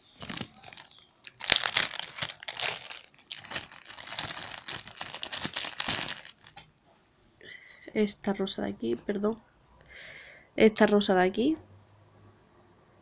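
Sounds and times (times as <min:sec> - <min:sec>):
packaging crinkling: 0:00.0 - 0:06.6.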